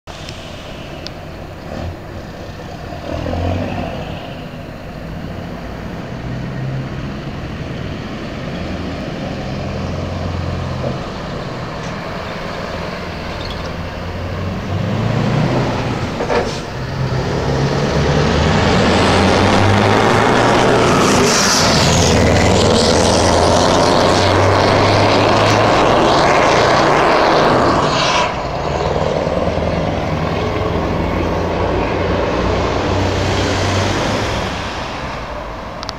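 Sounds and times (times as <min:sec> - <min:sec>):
loud diesel truck engine: 0:00.1 - 0:35.9.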